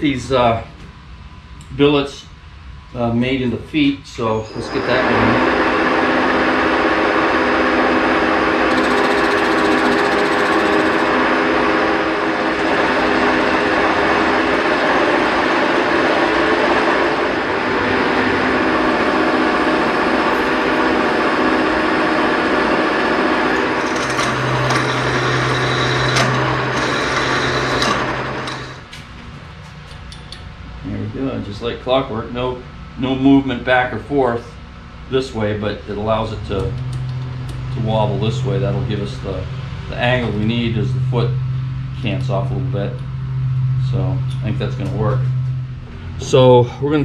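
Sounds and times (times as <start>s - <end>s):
low hum: 0.0s - 47.0s
lathe running: 4.5s - 28.9s.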